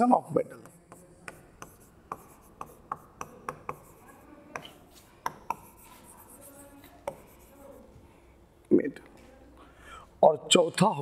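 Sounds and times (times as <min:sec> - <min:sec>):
scratchy writing strokes: 0:00.5 - 0:07.9
chalk taps on board: 0:00.6 - 0:07.5.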